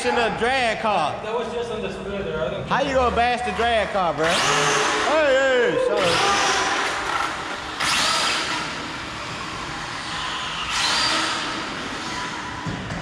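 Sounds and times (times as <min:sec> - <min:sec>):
rc car motor whining: 0:03.4 - 0:12.7.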